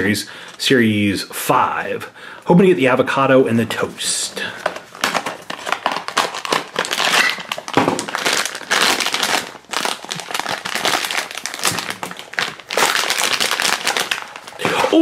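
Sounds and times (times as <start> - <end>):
foil bag crinkling: 4.6 - 15.0.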